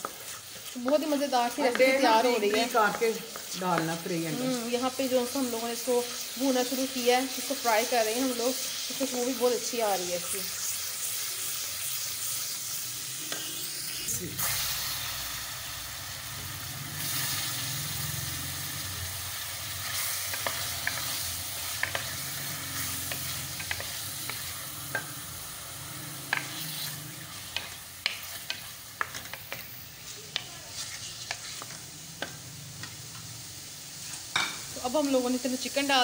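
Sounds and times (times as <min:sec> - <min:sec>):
wooden spoon scraping a pan: 0:00.0 - 0:04.3, 0:19.8 - 0:25.2, 0:26.2 - 0:32.4
chicken sizzling in hot oil: 0:00.0 - 0:36.0.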